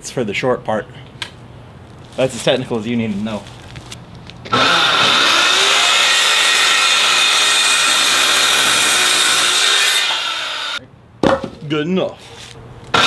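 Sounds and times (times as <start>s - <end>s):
circular saw cutting wood: 4.5s - 10.8s.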